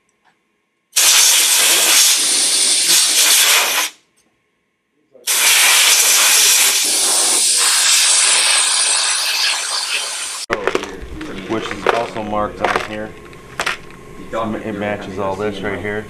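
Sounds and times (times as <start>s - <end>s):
air blow gun hissing: 1.0s - 4.0s, 5.3s - 10.5s.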